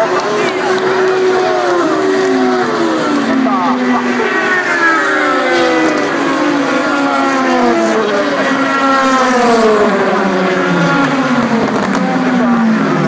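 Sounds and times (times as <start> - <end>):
race cars passing: 0.0 - 13.0.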